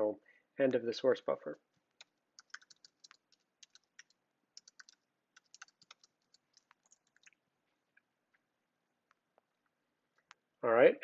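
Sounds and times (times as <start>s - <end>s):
faint keyboard typing: 1.6s - 8.1s.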